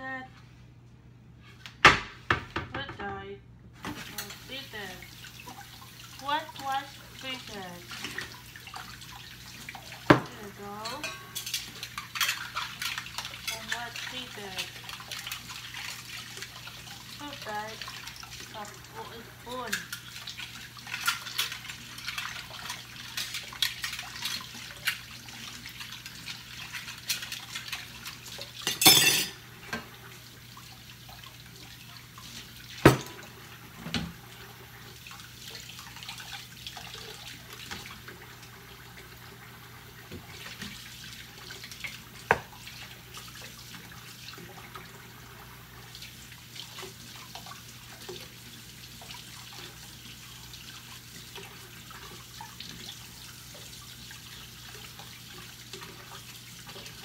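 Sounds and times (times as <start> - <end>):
tap water running and splashing: 3.8 - 57.0
dishes and utensils clinking: 10.2 - 13.8, 28.6 - 29.4
dishes clattering: 10.9 - 13.0, 28.6 - 29.9.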